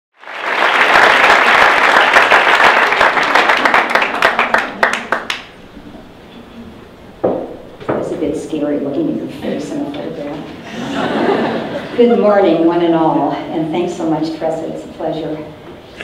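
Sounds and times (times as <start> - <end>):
audience applauding: 0.2 - 5.6.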